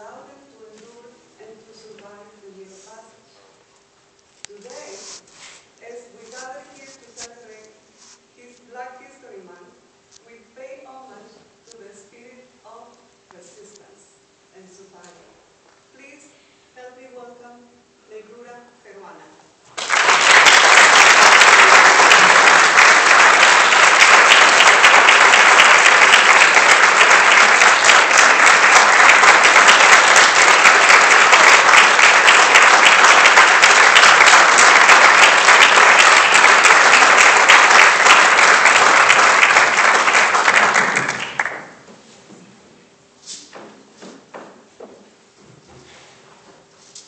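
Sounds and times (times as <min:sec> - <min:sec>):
audience applauding: 0:19.7 - 0:41.8.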